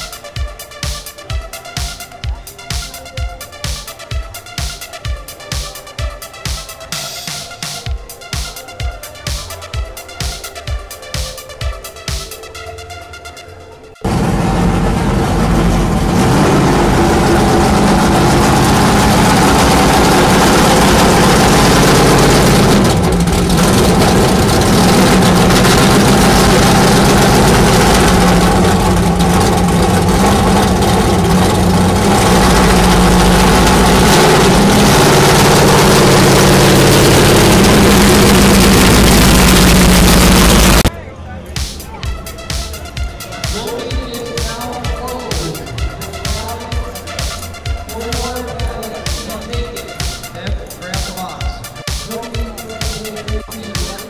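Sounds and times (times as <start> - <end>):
car engine idling: 14.0 - 40.9, 41.8 - 54.0.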